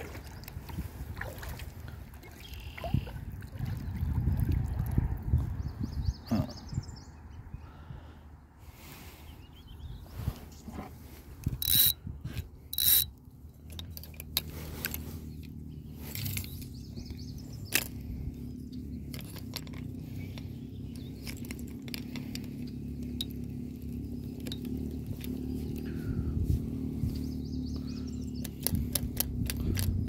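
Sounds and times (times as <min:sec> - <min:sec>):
fishing reel whirring: 0:11.5 - 0:12.0, 0:12.7 - 0:13.2.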